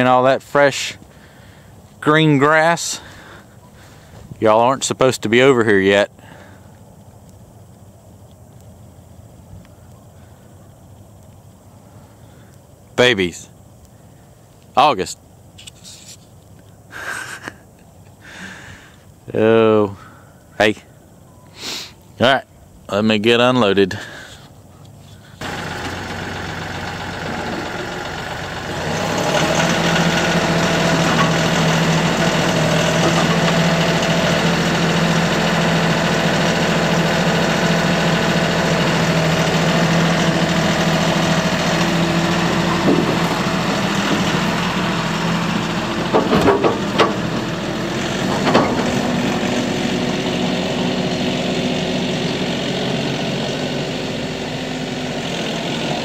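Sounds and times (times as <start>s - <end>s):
tractor diesel engine running: 0.0s - 7.1s, 25.2s - 56.0s
metal clunks on trailer ramps: 42.6s - 44.6s, 45.8s - 47.5s, 48.2s - 49.2s.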